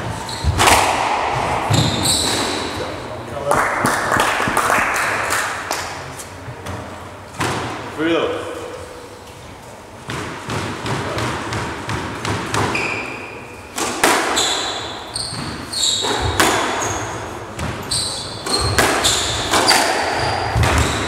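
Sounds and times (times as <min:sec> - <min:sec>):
shoes squeaking on wooden floor: 0:00.0 - 0:00.7, 0:01.7 - 0:03.0, 0:14.3 - 0:21.0
squash ball hitting rackets: 0:00.0 - 0:03.0, 0:06.7 - 0:07.9, 0:10.0 - 0:21.0
ball smacking court walls: 0:00.4 - 0:02.9, 0:13.8 - 0:17.0, 0:17.6 - 0:21.0.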